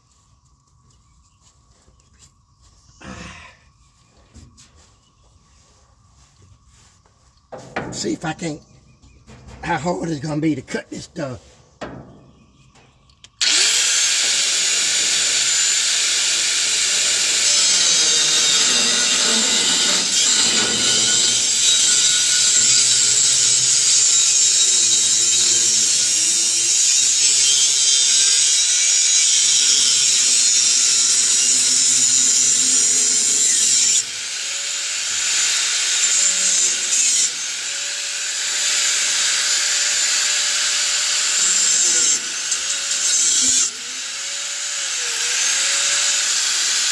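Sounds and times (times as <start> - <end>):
angle grinder cutting metal pipe: 13.4 - 46.9.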